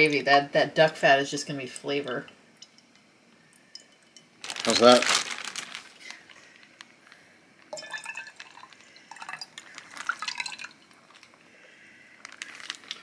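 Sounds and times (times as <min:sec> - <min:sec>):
liquid dripping into a glass jar: 0:02.2 - 0:04.4, 0:07.7 - 0:11.3.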